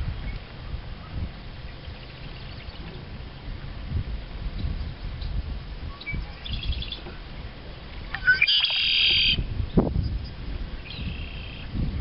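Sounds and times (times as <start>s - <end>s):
songbird trilling: 5.9s - 7.1s, 8.0s - 11.8s.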